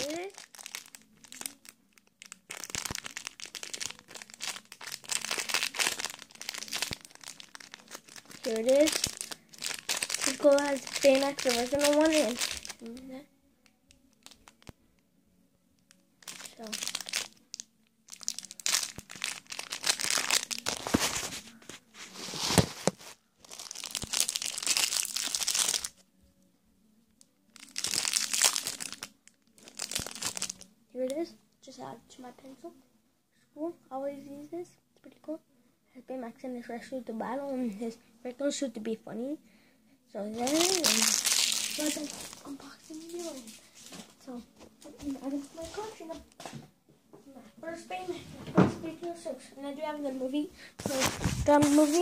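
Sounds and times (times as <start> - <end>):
plastic bag crinkling: 0.0 - 13.0, 14.2 - 14.7, 16.2 - 26.0, 27.6 - 30.6, 40.4 - 44.1, 50.8 - 52.0.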